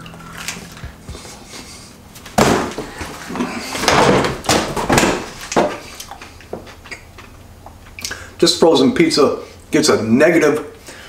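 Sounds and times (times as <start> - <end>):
trash can bang: 2.3 - 5.8.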